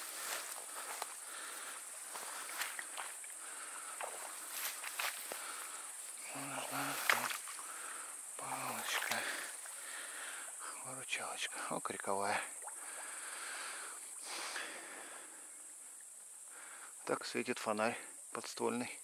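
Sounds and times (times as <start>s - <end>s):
footsteps through tall grass: 0.0s - 3.3s, 3.9s - 7.6s
crickets chirring: 0.0s - 19.0s.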